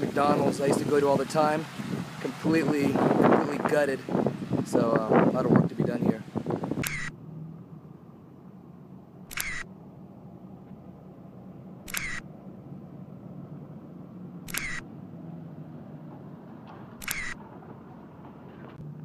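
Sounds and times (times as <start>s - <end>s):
camera shutter click: 6.8s - 7.1s, 9.3s - 9.7s, 11.9s - 12.2s, 14.5s - 14.8s, 17.0s - 17.4s.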